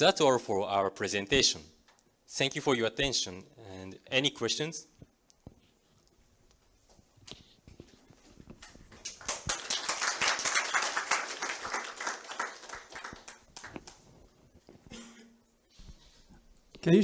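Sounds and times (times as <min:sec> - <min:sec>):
audience applauding: 0:09.0 - 0:14.1.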